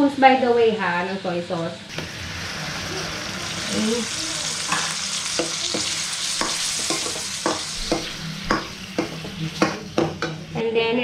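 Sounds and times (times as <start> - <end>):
food sizzling in a wok: 0.8 - 10.6
metal spoon scraping a pan: 4.6 - 10.4.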